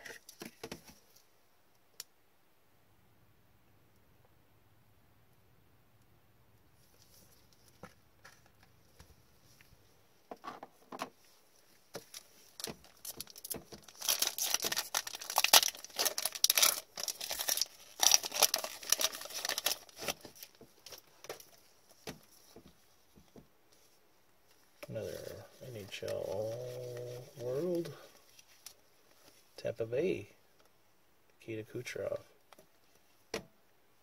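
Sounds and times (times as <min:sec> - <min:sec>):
wrapper tearing and crinkling: 0:12.0 - 0:21.6, 0:25.0 - 0:29.4.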